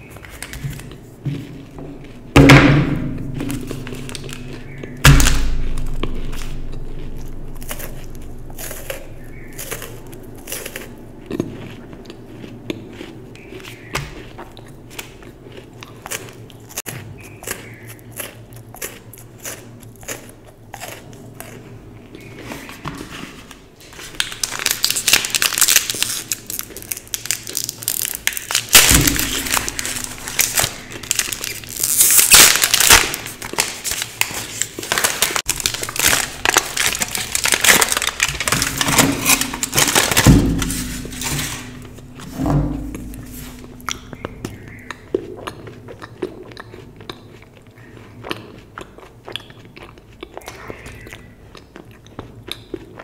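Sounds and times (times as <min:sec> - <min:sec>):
chewing crunches and mouth clicks: 0:00.0 - 0:02.4, 0:05.7 - 0:22.8, 0:23.4 - 0:40.1, 0:42.8 - 0:53.0
wrapper crinkling: 0:03.2 - 0:11.0, 0:23.4 - 0:42.3.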